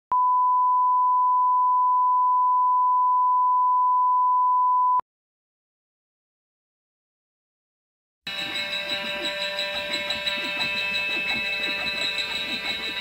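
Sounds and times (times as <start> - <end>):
steady test tone beep: 0.1 - 5.0.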